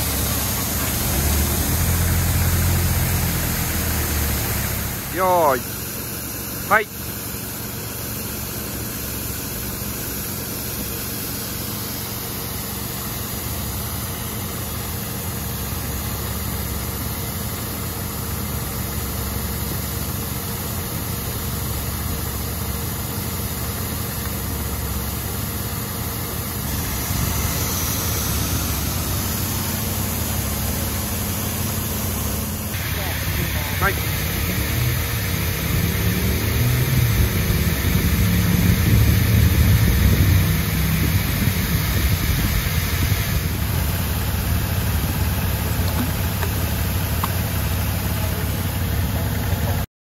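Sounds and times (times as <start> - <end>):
brush rollers humming: 0.0 - 15.6, 24.0 - 49.8
water nozzles spraying hiss: 0.0 - 49.2.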